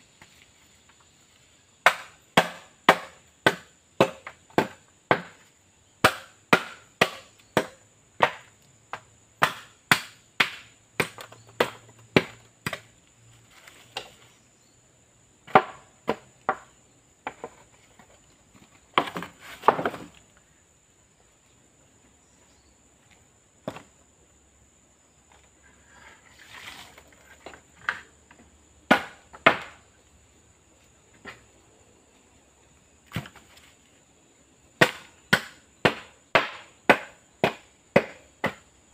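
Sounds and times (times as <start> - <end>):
blade chopping bamboo: 1.8 - 5.4, 6.0 - 12.9, 28.9 - 29.8, 34.8 - 38.6.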